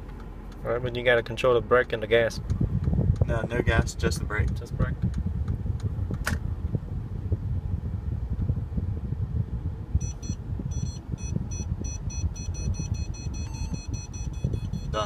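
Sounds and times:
low rumble: 2.4s - 15.0s
parking sensor warning beeps: 10.0s - 15.0s.

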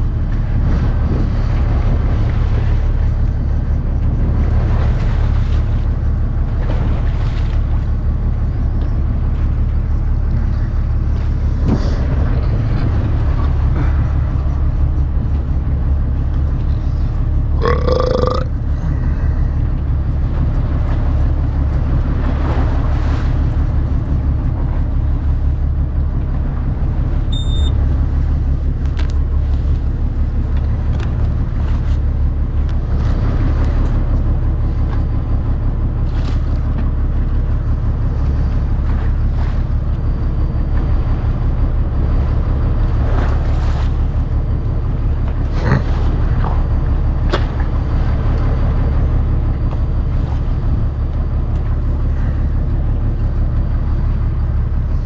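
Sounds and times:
wind on microphone: 0.0s - 17.7s
boat engine droning: 0.0s - 55.0s
water around hull: 0.0s - 55.0s
brief high beep: 27.3s - 27.8s.

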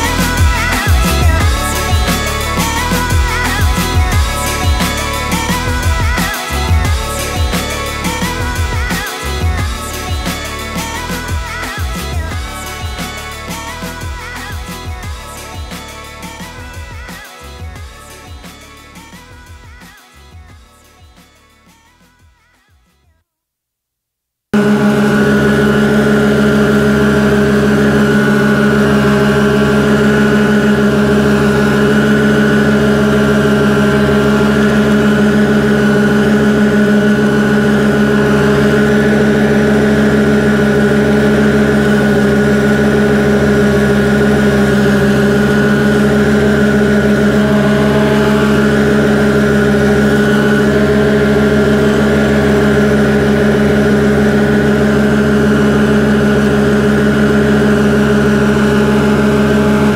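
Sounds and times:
riding mower engine droning: 0.0s - 19.9s, 24.6s - 59.9s.

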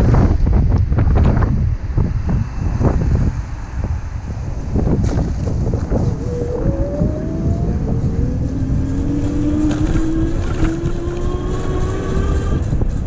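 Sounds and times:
wind noise: 0.0s - 13.0s
electric motor whining: 5.7s - 12.8s.

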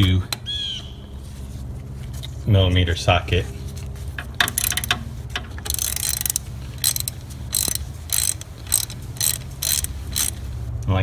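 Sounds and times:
hand ratchet clicking: 4.4s - 10.5s.

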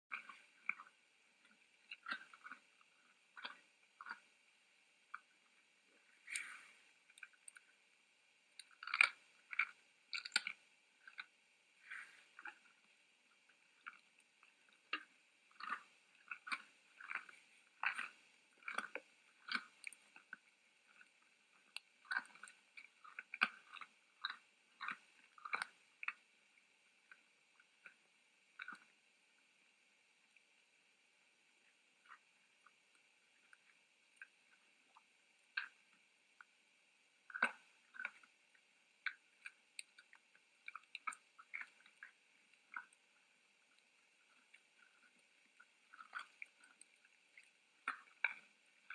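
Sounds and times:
deer chewing and crunching feed: 0.1s - 4.2s, 8.6s - 26.2s, 39.0s - 48.9s.

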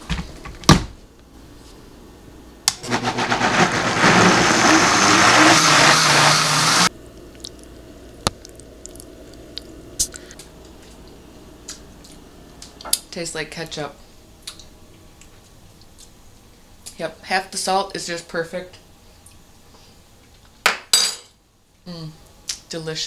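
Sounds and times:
blender running: 2.8s - 6.9s.

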